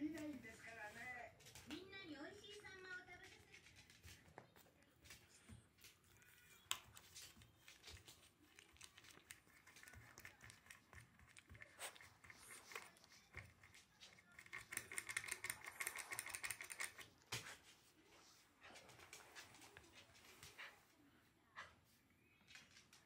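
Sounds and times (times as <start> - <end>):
dog claws scratching and clicking: 3.1 - 17.6.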